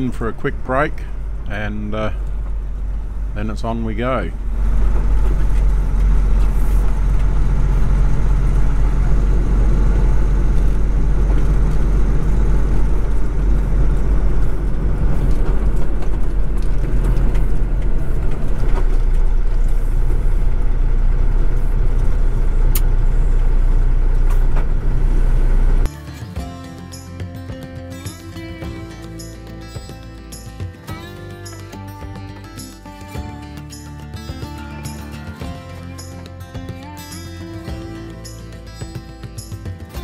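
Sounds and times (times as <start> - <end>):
diesel truck engine rumble: 0.0 - 40.0
road noise: 0.0 - 40.0.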